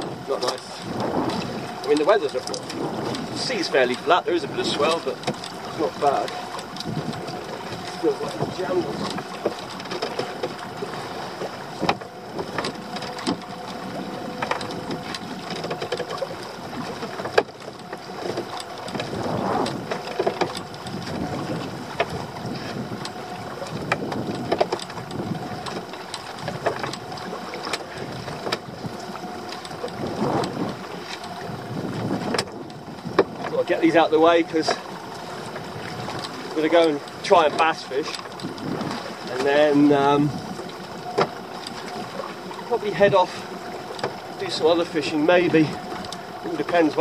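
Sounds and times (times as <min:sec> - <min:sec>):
water sloshing against hull: 0:00.0 - 0:47.0
rope and boat knocks: 0:11.4 - 0:22.7.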